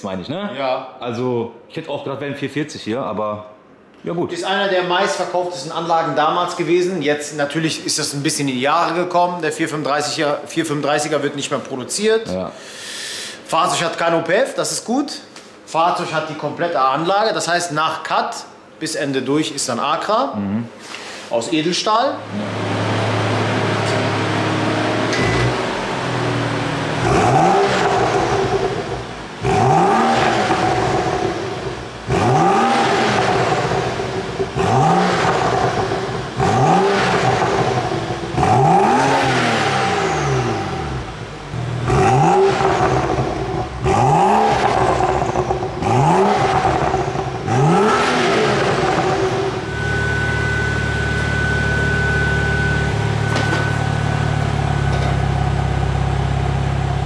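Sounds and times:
car engine revving and idling: 0:22.2 - 0:57.0.

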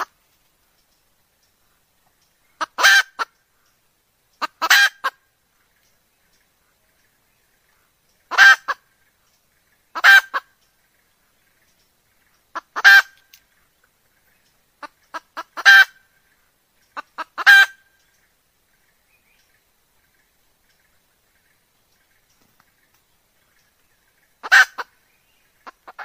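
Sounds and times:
hen calling: 0:02.4 - 0:05.3, 0:07.8 - 0:09.1, 0:09.9 - 0:10.6, 0:12.4 - 0:13.4, 0:14.8 - 0:18.3, 0:23.6 - 0:26.0.

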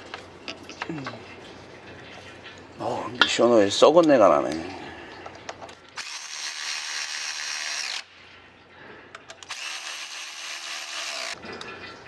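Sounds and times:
electric ratchet whirring: 0:06.0 - 0:08.1, 0:09.5 - 0:11.4.

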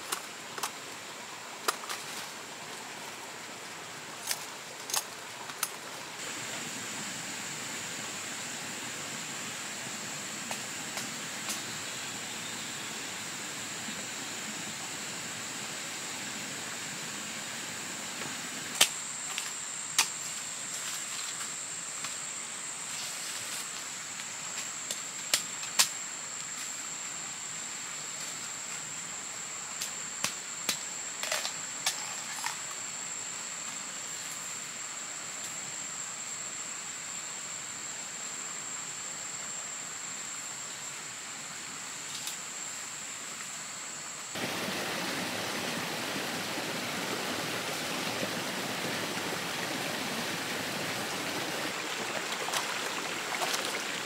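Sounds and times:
twigs and leaves snapping underfoot: 0:04.2 - 0:05.8
high-pitched insect drone: 0:06.3 - 0:23.8.

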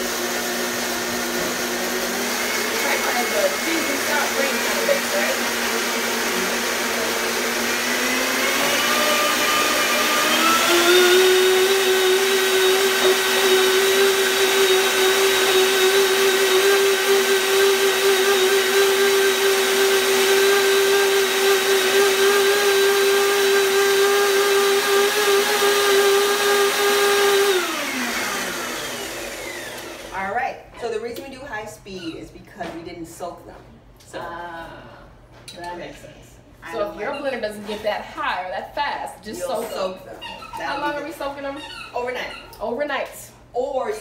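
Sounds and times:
blender motor whine: 0:00.0 - 0:30.2.

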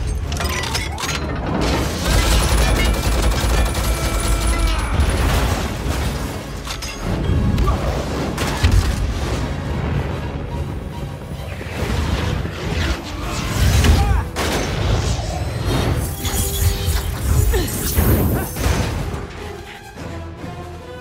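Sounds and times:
orchestral score: 0:03.0 - 0:21.0
explosions: 0:07.2 - 0:16.1.

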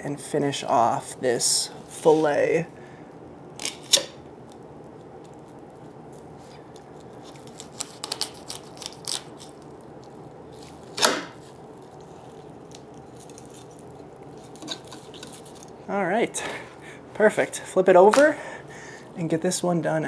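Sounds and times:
knife crunching through fish: 0:07.0 - 0:09.7.

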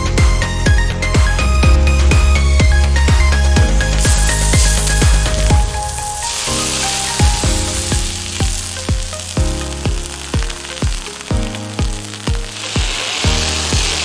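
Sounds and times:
background music with steady beat: 0:00.0 - 0:14.0
foam spraying hiss: 0:03.8 - 0:14.0.

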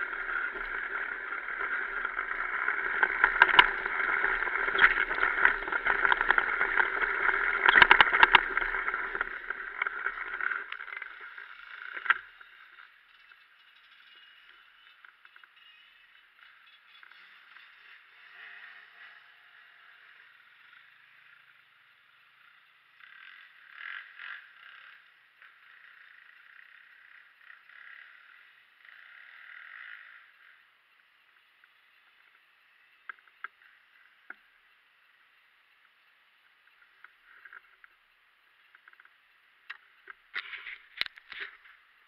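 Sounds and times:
faint clicks: 0:00.0 - 0:15.7, 0:31.6 - 0:34.5
distant dirt bike revving: 0:00.0 - 0:42.0.

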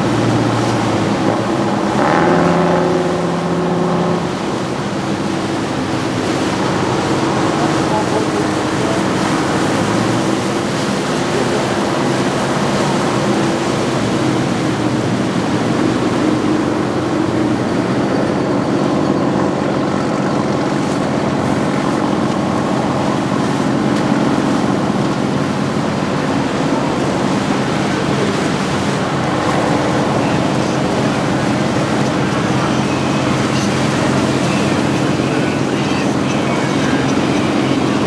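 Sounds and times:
boat diesel engines humming: 0:00.0 - 0:38.0
water churning: 0:00.0 - 0:38.0.

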